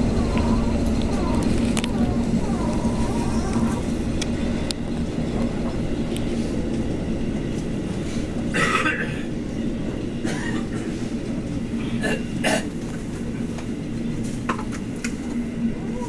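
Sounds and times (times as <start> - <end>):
low hum: 0.0 - 10.5
train wheels rumbling on rail: 0.0 - 16.0.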